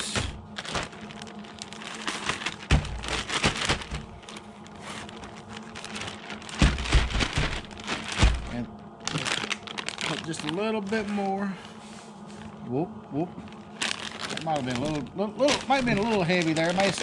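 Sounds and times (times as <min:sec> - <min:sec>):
grainy rustling of dry mix: 0:00.4 - 0:12.6, 0:13.4 - 0:17.0
dull knocks: 0:06.5 - 0:08.5.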